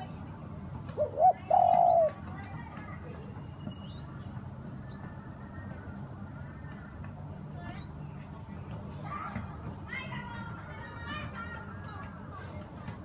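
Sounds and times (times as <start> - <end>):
dove cooing: 1.0 - 2.2.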